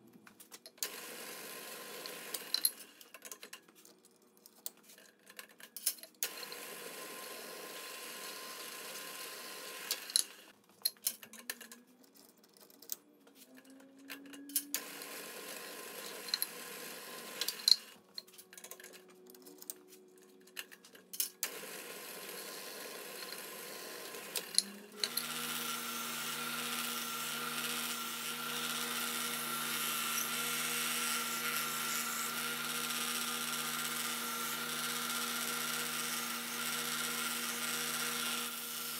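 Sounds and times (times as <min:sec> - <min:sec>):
drill press running: 0:00.8 - 0:02.6, 0:06.2 - 0:10.4, 0:14.8 - 0:17.8, 0:21.4 - 0:38.9
belt sander running: 0:06.4 - 0:10.4, 0:21.5 - 0:38.9.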